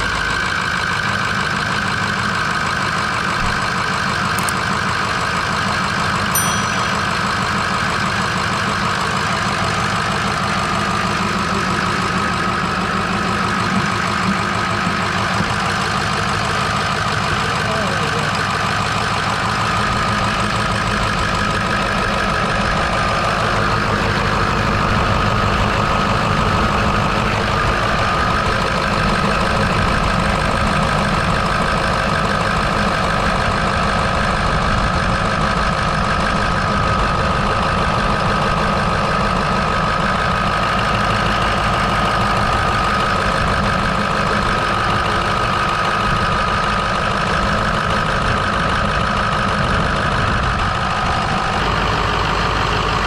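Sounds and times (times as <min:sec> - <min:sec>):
diesel engine idling: 0:00.0 - 0:53.0
high-pitched tone: 0:06.4 - 0:07.9.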